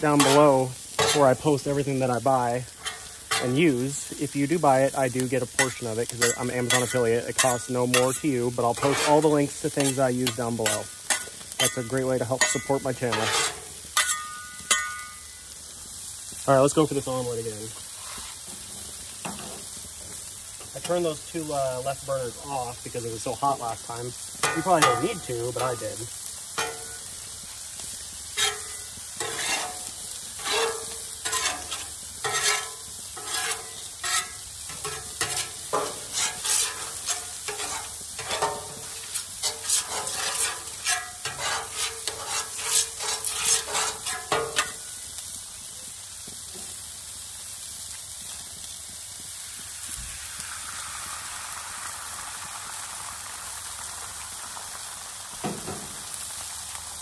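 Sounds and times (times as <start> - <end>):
metal spatula scraping griddle: 0.0 - 15.3, 17.9 - 19.7, 23.2 - 27.2, 27.8 - 45.0
butter sizzling on griddle: 0.0 - 57.0
frying sizzle: 0.0 - 57.0.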